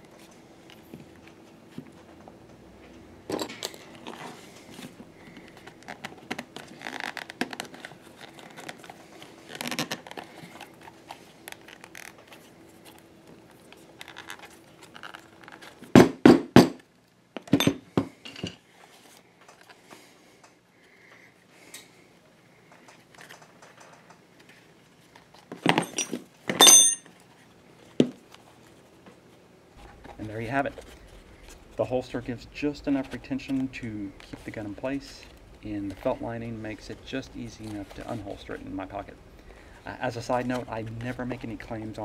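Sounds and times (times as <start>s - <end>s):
leather crinkling and rustling: 3.9s - 15.9s.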